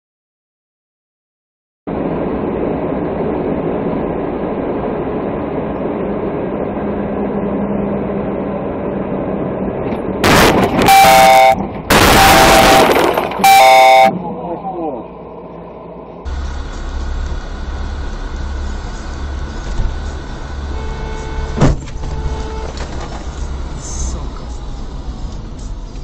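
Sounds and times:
vehicle engine and road noise: 1.9 - 26.0
loud crashing and scraping: 10.2 - 13.6
vehicle horn: 10.3 - 14.2, 20.0 - 22.9.

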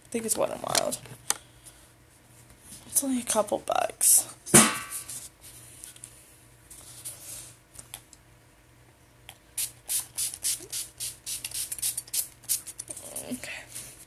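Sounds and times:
spray bottle hissing: 9.6 - 12.6.

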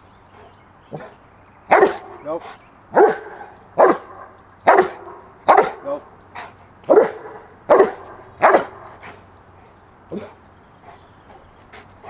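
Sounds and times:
dog barking: 0.9 - 2.2, 2.9 - 5.8, 6.9 - 9.0.

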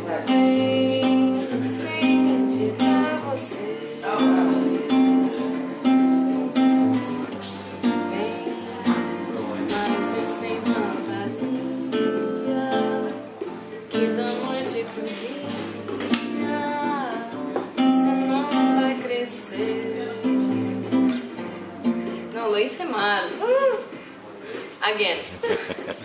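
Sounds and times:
woman singing softly: 0.0 - 6.6, 7.8 - 21.2
classical guitar strummed chords: 0.0 - 23.0.

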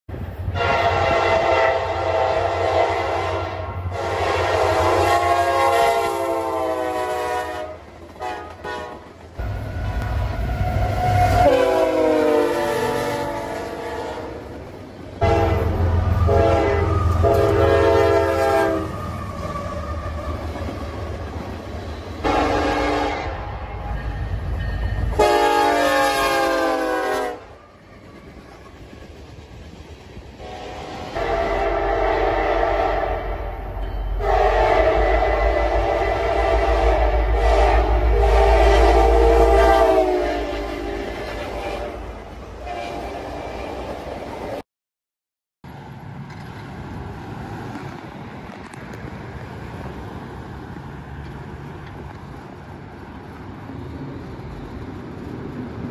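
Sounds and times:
locomotive air horn blasts: 0.5 - 14.5, 15.2 - 19.9, 22.2 - 24.0, 25.0 - 27.6, 30.4 - 43.8.

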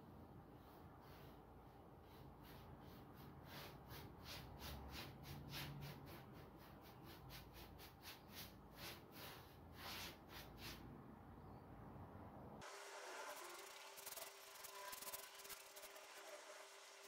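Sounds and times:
paintbrush strokes on wood: 0.3 - 10.9.

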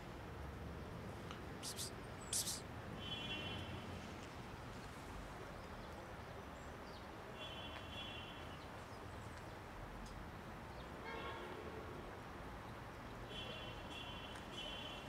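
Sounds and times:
faint outdoor background noise: 0.0 - 15.0
short high bird calls: 1.6 - 2.6.

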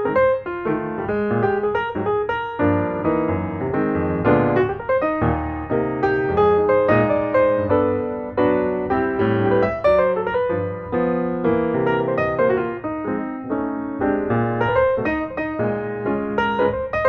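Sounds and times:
gentle solo piano melody: 0.0 - 17.0.

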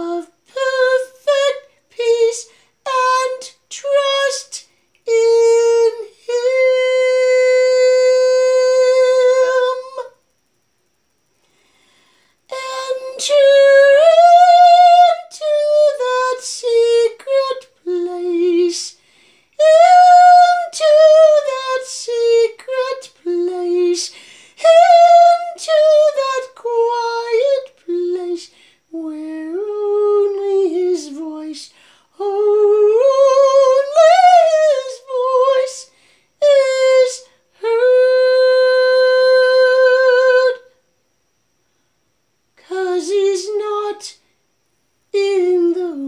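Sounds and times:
woman singing wordless melody: 0.0 - 10.3, 12.5 - 40.8, 42.5 - 44.3, 45.1 - 46.0
singer breathing: 11.4 - 12.4, 18.9 - 19.6, 24.1 - 24.6, 31.7 - 32.2, 35.9 - 36.4.

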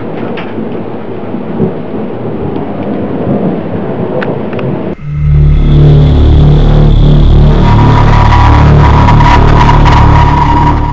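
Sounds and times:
thunder rumbling: 0.0 - 10.9
loud music with bass line: 5.0 - 10.9.

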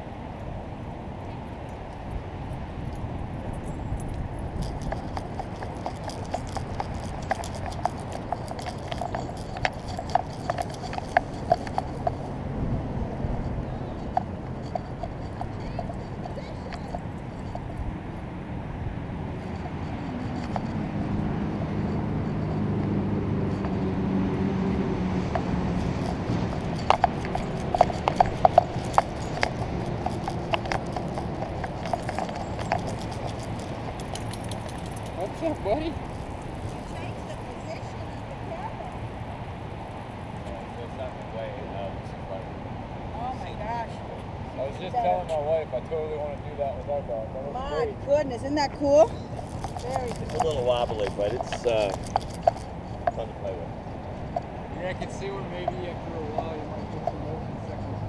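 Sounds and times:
wind buffeting microphone: 0.0 - 41.4, 47.6 - 58.0
steady low rumble: 2.2 - 41.6
light clicks and taps of camera rig: 4.0 - 12.4, 25.3 - 37.5, 49.2 - 53.2.

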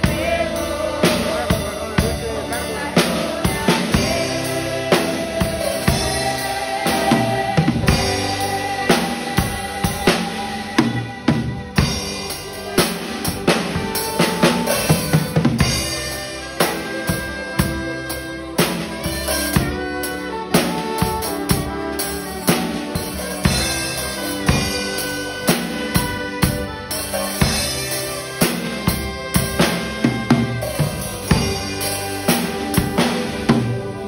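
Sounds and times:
congregation singing: 0.0 - 34.0
drum kit hits: 0.0 - 34.0
worship band playing: 0.0 - 34.0.

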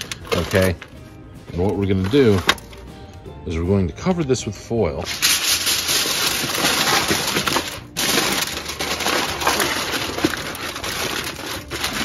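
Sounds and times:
aluminium foil crinkling: 0.0 - 1.0, 5.1 - 12.0.

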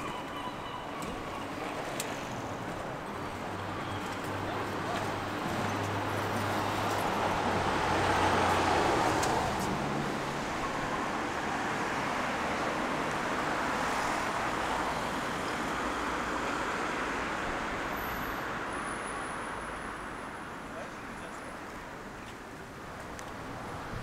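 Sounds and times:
passing cars hum: 0.0 - 24.0
vehicle passing by: 5.0 - 12.6.

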